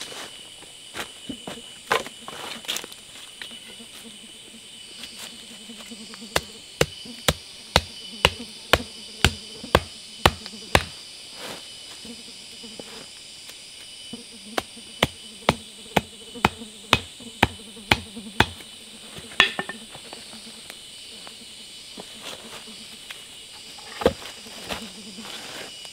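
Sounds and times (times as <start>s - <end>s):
wooden stakes being pounded: 6.4s - 10.9s, 14.6s - 18.6s.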